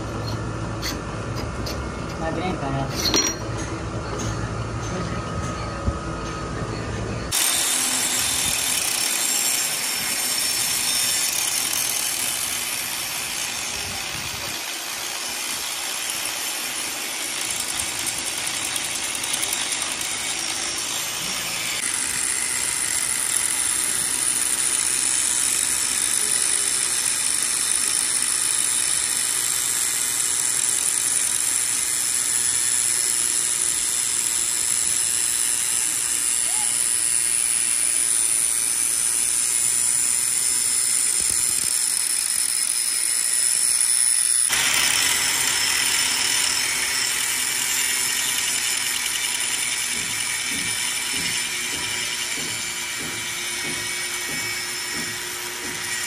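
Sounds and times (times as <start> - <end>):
hissing workshop machine: 16.1 - 56.0.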